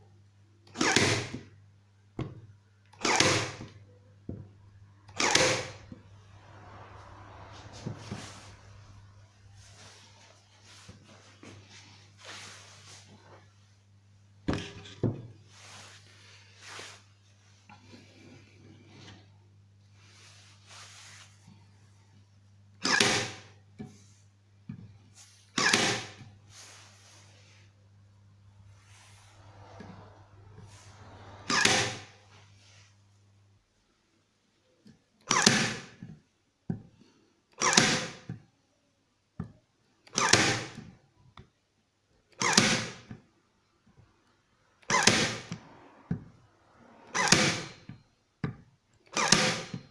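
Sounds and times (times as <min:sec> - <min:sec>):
electric stapler shots into wood: 0:00.7 - 0:01.4, 0:03.0 - 0:03.7, 0:05.1 - 0:05.8, 0:22.8 - 0:23.5, 0:25.6 - 0:26.2, 0:31.5 - 0:32.1, 0:35.3 - 0:36.0, 0:37.6 - 0:38.3, 0:40.1 - 0:40.8, 0:42.4 - 0:43.1, 0:44.9 - 0:45.5, 0:47.1 - 0:47.8, 0:49.1 - 0:49.8
wood sliding over table: 0:05.8 - 0:13.0.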